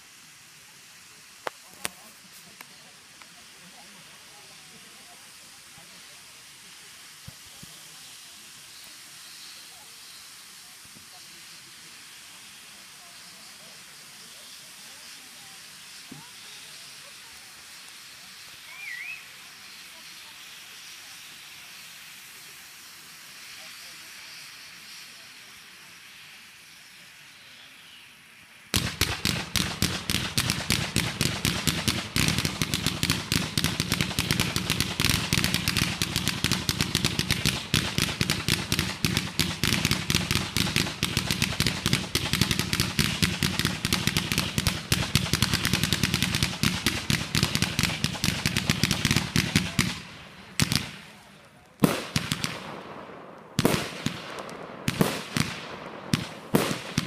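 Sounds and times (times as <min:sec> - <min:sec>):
fireworks fountain hissing: 0:00.0 - 0:57.0
rapid crackle of firework shots: 0:00.0 - 0:57.0
aerial firework bangs: 0:28.8 - 0:50.0.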